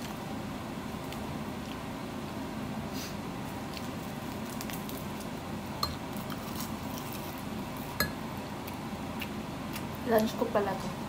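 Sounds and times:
steady low hum: 0.0s - 11.0s
soft chewing: 1.0s - 2.0s, 3.4s - 5.4s, 8.6s - 10.4s.

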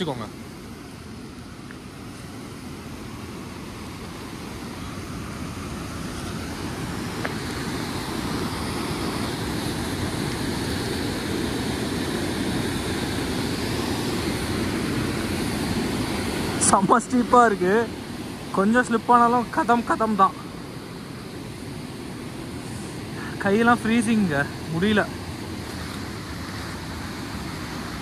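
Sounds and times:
fast river rushing: 0.0s - 28.0s.

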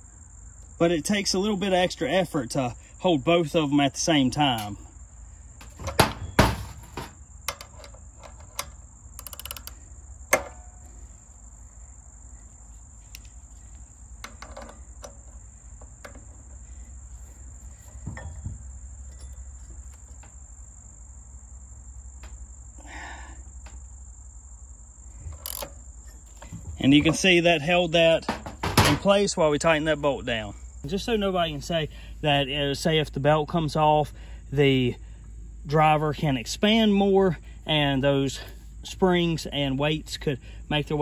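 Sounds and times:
high insect buzz: 4.2s - 27.4s
ratchet and wrench clicking: 7.5s - 10.9s, 25.3s - 26.5s.

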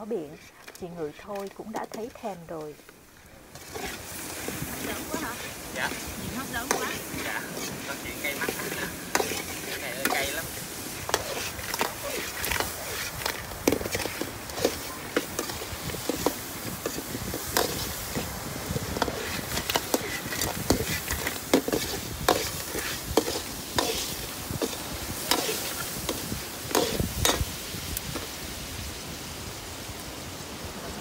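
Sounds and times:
food sizzling in a wok: 0.1s - 31.0s
metal ladle scraping a wok: 3.5s - 27.5s.

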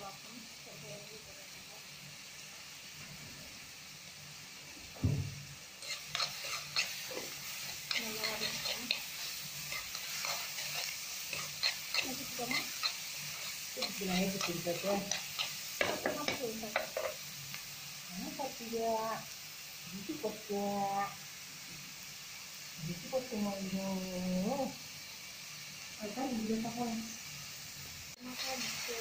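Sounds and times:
onions sizzling in oil: 0.0s - 29.0s
knock on pan: 5.0s - 5.4s, 15.8s - 17.0s
metal spoon scraping pan: 5.8s - 17.2s.

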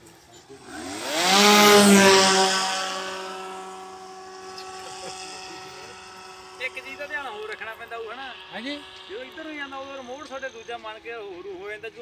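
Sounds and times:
model airplane motor buzzing: 0.4s - 11.3s
propeller wash rushing: 0.6s - 11.2s.

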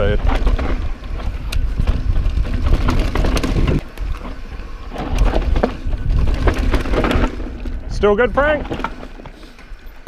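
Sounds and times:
wind rumble on microphone: 0.0s - 8.6s
bike clattering and knocking: 0.0s - 9.4s
bike tyres crunching over dirt: 0.0s - 10.0s.

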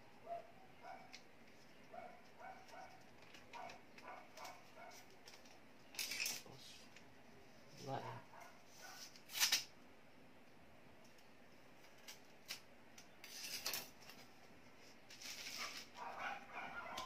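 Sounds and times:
paper rustling and scraping: 13.2s - 17.0s.

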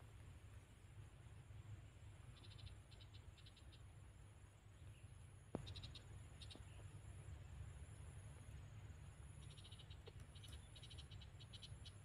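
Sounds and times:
small animal chirping: 9.4s - 12.0s.

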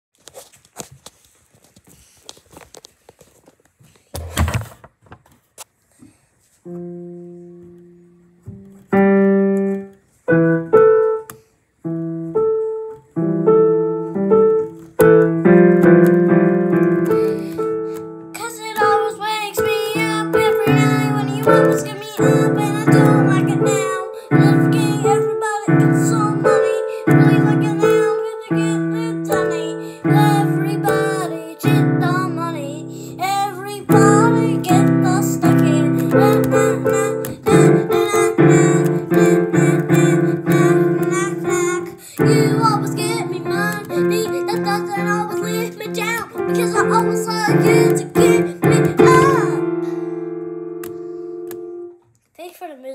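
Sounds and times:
piano playing: 6.7s - 52.0s.

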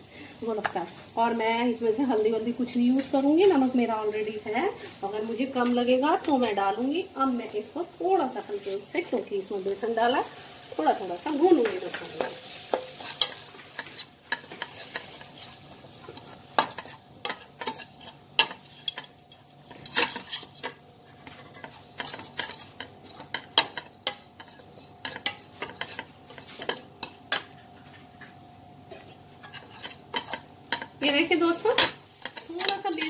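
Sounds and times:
quiet sizzle: 0.0s - 33.0s
metal ladle scraping a pan: 12.0s - 27.5s.

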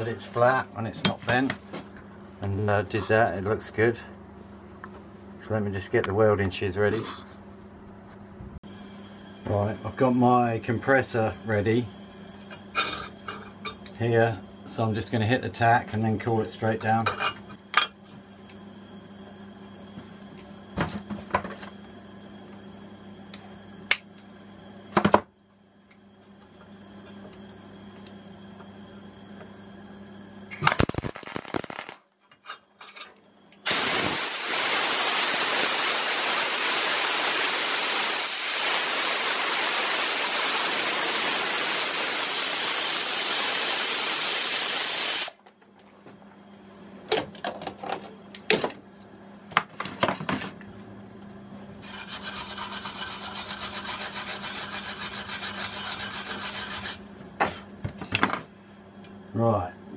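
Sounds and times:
air blow gun hissing: 30.6s - 32.0s, 33.6s - 45.4s
welding tack crackling: 30.6s - 32.0s
wire brush scrubbing metal: 51.8s - 57.0s.

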